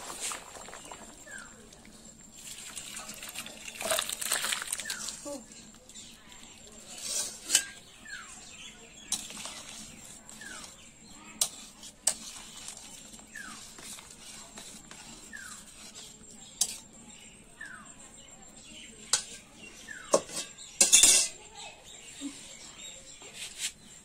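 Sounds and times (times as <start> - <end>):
metal spoon stirring thick curry: 0.2 - 21.4
spoon clinking in steel bowl: 20.1 - 21.4.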